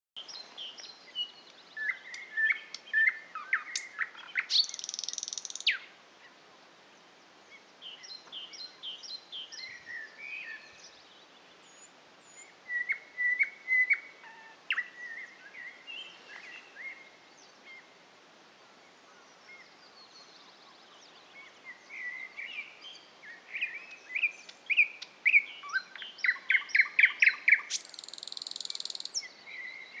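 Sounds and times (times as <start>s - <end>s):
bird singing whistles and clicks: 0.3s - 5.8s, 23.6s - 29.3s.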